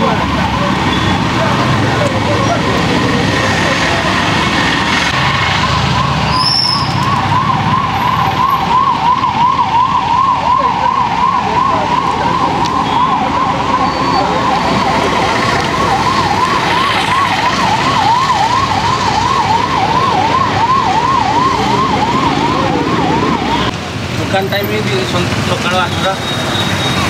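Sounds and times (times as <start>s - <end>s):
street traffic noise: 0.0s - 27.0s
electronic siren yelping: 5.2s - 23.7s.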